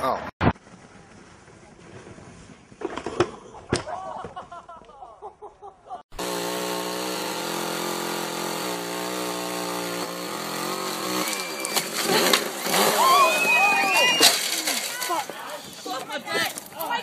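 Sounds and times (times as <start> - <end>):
chainsaw running: 6.1 - 15.0.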